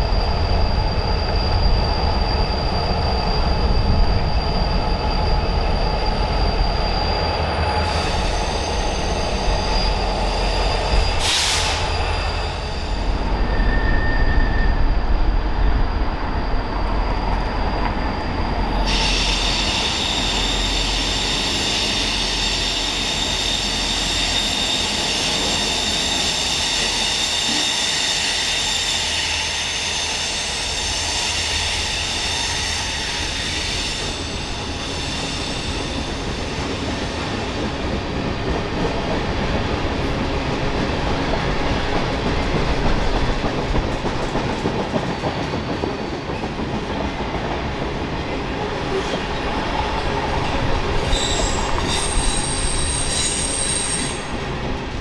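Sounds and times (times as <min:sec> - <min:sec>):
freight train cars rumbling: 0:00.0 - 0:55.0
high wheel squeals: 0:00.2 - 0:15.0, 0:16.4 - 0:37.4, 0:50.4 - 0:54.4.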